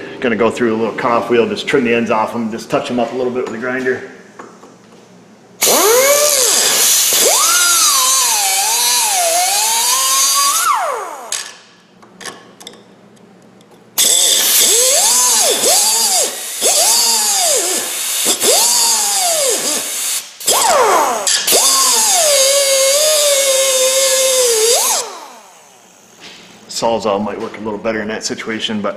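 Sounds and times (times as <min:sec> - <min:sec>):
air cutoff tool grinding metal: 0:05.6 - 0:11.4, 0:14.0 - 0:25.8.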